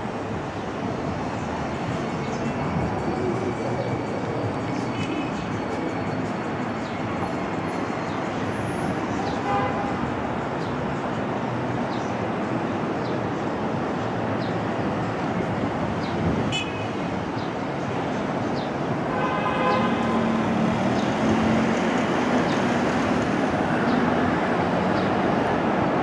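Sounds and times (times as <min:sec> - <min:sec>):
subway train running hum: 0:00.0 - 0:16.4
city noise: 0:00.0 - 0:26.0.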